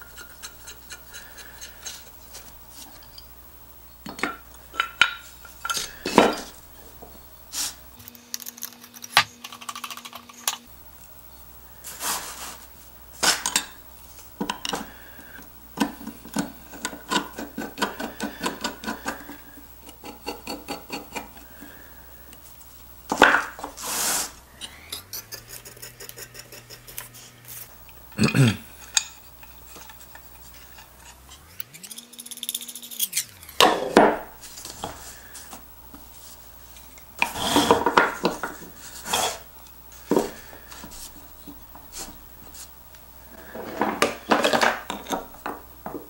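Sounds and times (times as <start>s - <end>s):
metal parts clinking and scraping: 28.7s - 35.5s.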